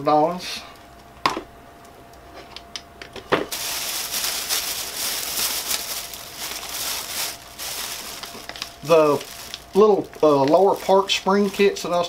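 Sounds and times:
plastic bag rustling: 3.5s - 12.0s.

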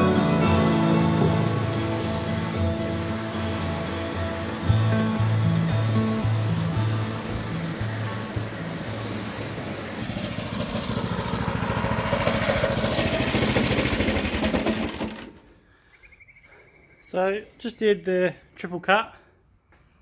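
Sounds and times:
reel mower engine running: 0.0s - 15.6s.

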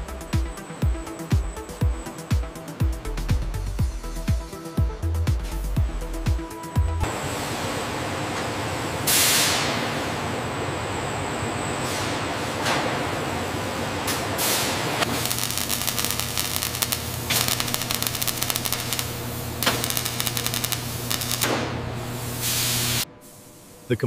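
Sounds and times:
factory machinery hum: 0.0s - 24.0s
spot welding crackle: 15.0s - 23.0s.

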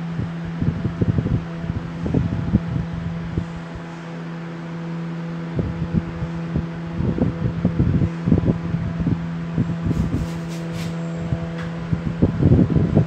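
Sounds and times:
steady mechanical hum: 0.0s - 13.0s
microphone handling thumps: 9.9s - 11.0s.

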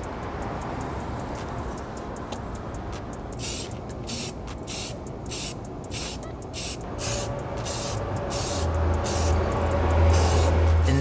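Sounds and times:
spray paint can hissing: 3.1s - 11.0s.

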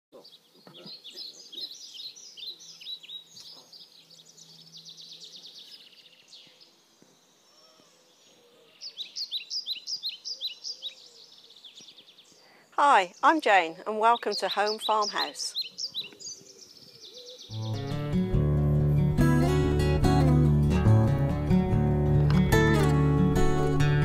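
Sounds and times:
songbirds chirping and trilling: 0.2s - 18.4s.

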